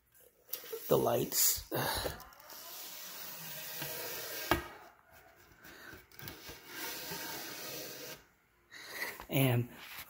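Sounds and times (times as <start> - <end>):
tube scraping over pole: 2.5 - 4.8, 6.2 - 8.3.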